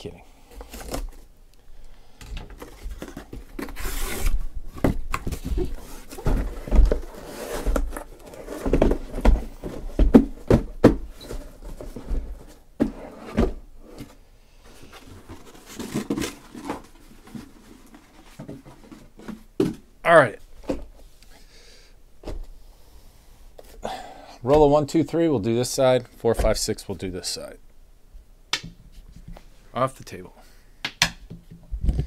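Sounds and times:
cardboard boxes rubbing and scraping: 0:02.6 - 0:19.5.

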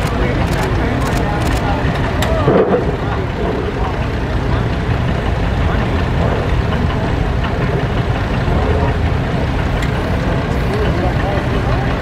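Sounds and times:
tractor engine running: 0:00.0 - 0:12.0.

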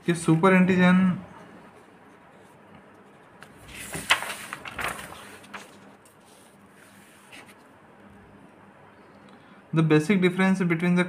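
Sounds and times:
paper pages rustling: 0:03.4 - 0:07.7.

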